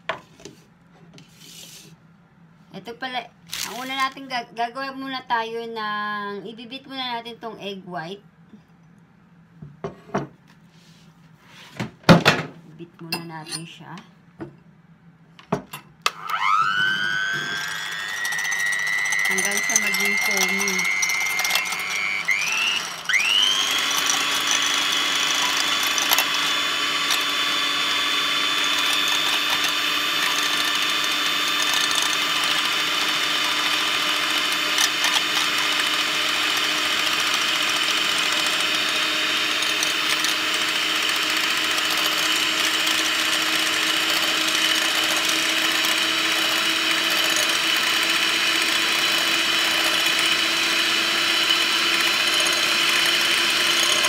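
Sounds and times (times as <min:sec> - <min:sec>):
electric hand mixer whining: 0:16.1 - 0:54.0.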